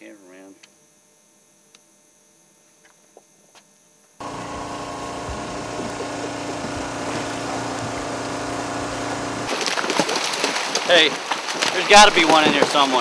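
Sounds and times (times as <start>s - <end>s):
loud engine drone: 4.2s - 9.6s.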